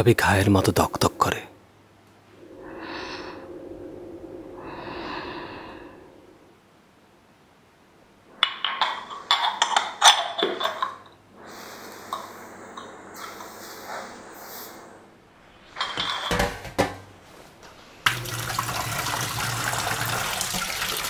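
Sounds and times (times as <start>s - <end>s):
tea cups clinking: 8.4s - 11.2s, 15.7s - 16.9s.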